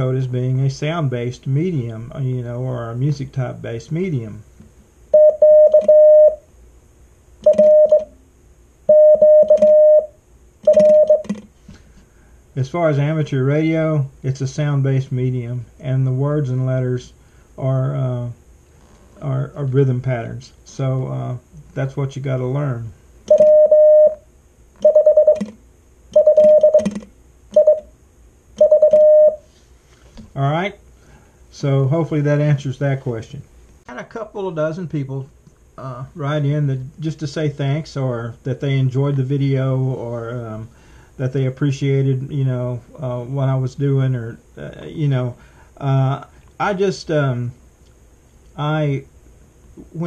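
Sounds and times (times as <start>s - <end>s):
morse code beeps: 5.2s - 6.4s, 7.4s - 8.1s, 8.9s - 11.5s, 23.3s - 24.2s, 24.8s - 25.6s, 26.2s - 27.9s, 28.6s - 29.4s
telegraph key clicks: 11.2s - 11.5s.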